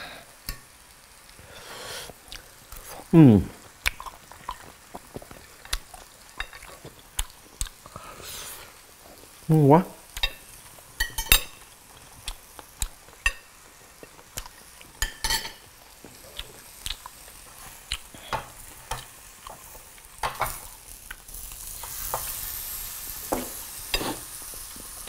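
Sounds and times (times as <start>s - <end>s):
meat sizzling on a grill: 0.0s - 25.0s
metal tongs on grill plate: 6.4s - 6.7s, 10.1s - 11.8s, 13.2s - 15.7s, 18.3s - 24.7s
cutlery clinking on a plate: 11.0s - 11.6s, 15.0s - 15.6s, 20.2s - 20.7s.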